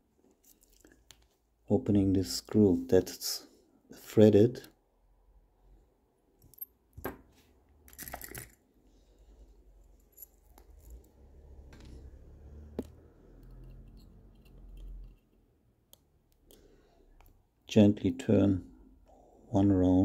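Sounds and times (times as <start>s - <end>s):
screwdriver clicks and scrapes: 13.4s - 16.0s.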